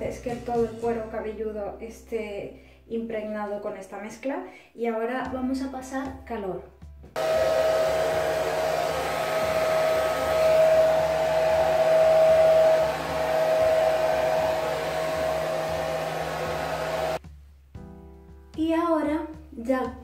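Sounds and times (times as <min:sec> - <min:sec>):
hair dryer running: 0:07.2 - 0:17.2.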